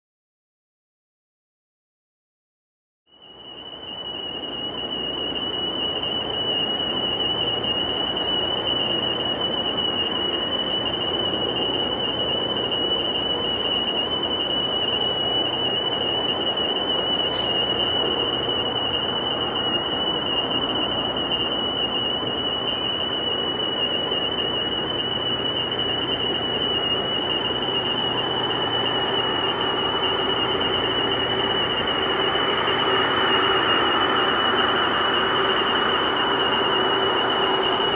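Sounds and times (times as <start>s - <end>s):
jet engines at taxi power: 3.1s - 37.9s.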